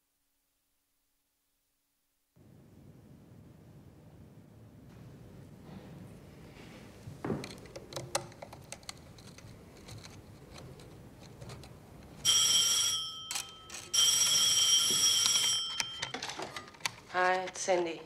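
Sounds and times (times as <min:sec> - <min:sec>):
telephone ringing: 0:12.2 - 0:17.7.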